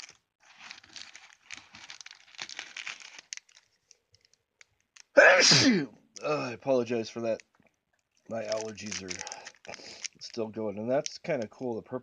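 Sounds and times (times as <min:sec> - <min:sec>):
plastic packaging crinkling: 0:00.0 - 0:05.2, 0:07.2 - 0:11.7
person sneezing: 0:05.2 - 0:06.6.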